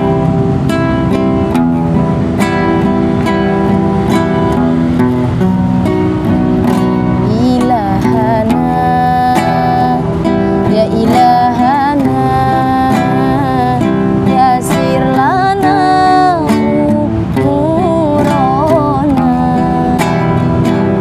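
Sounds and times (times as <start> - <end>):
strummed acoustic guitar: 0.0 - 21.0
woman singing: 6.3 - 21.0.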